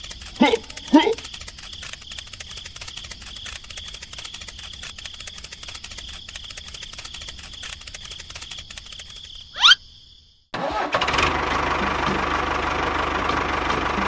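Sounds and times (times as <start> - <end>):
rapid clicking rattle: 0.0 - 9.4.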